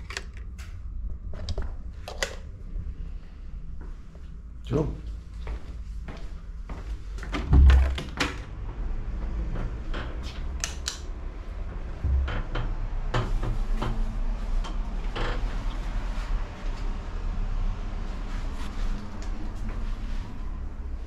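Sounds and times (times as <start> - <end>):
heavy low door thump: 12.0 - 13.4.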